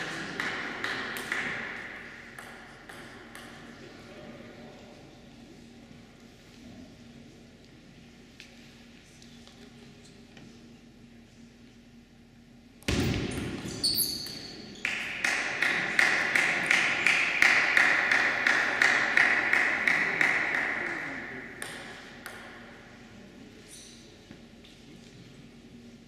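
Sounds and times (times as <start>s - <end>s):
short high squeaks: 13.7s - 14.8s.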